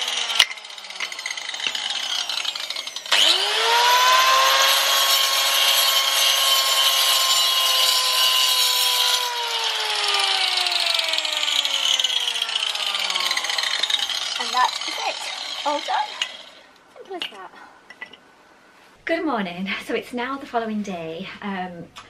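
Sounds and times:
grinder cutting brick: 0.0s - 16.7s
angle grinder whining: 0.0s - 16.8s.

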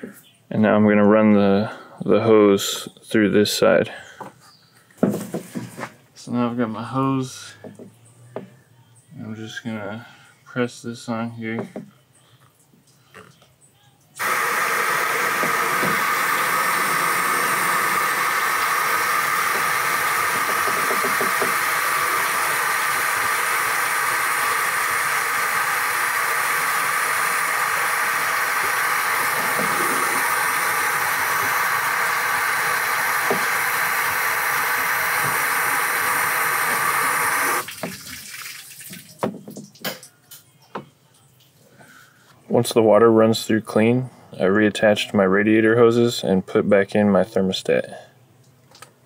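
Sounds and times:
water rushing through hose: 14.2s - 39.1s.

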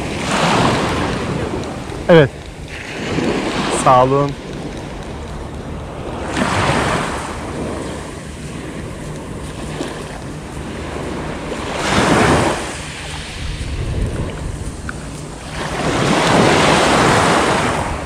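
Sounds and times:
steady surf: 0.0s - 18.0s
small waves washing onto pebbles: 8.4s - 17.8s.

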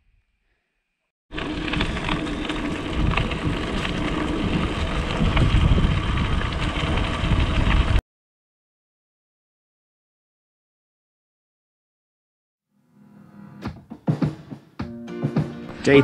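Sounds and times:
gravel crackling under tyres: 1.3s - 8.0s
wind buffeting microphone: 1.4s - 8.0s.

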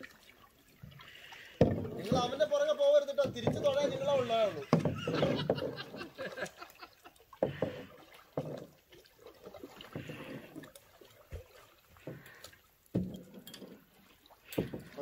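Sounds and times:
soft water splashes: 0.0s - 15.0s
water lapping: 0.0s - 15.0s.

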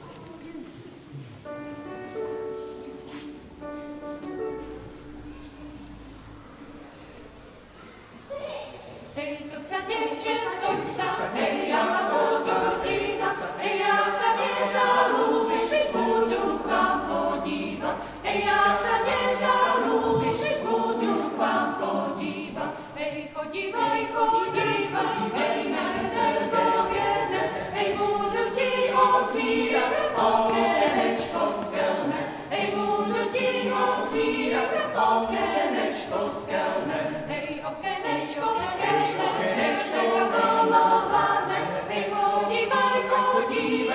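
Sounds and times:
choir singing a cappella: 9.0s - 43.9s.

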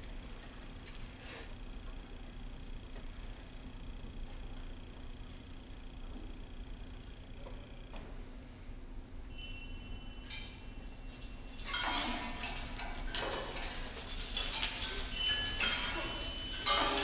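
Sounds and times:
bell-like percussion notes: 9.3s - 17.0s.

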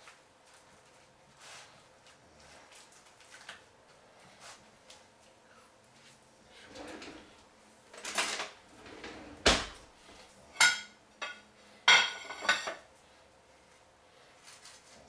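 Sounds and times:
plate and knife clinking: 10.6s - 12.8s.

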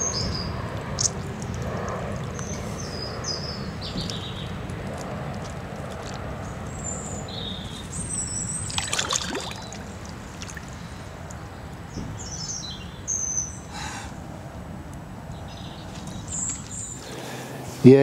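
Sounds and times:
small birds chirping: 0.0s - 14.2s, 15.3s - 18.0s
fish splashing in water: 4.5s - 11.4s.

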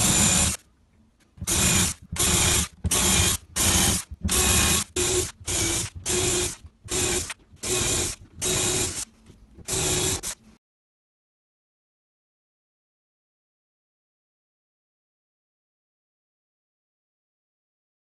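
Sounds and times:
cordless drill boring holes: 0.0s - 0.6s, 1.4s - 9.0s, 9.7s - 10.4s.

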